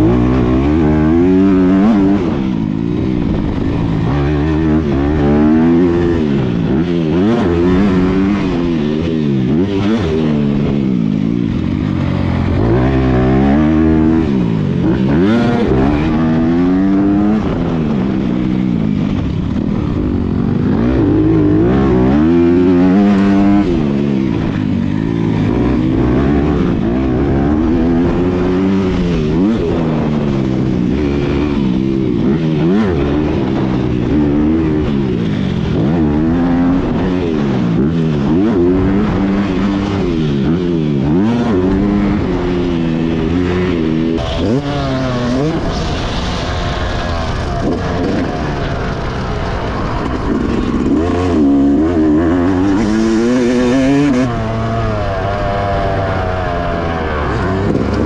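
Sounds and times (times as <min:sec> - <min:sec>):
motocross bike engine revving: 0:00.0 - 0:58.0.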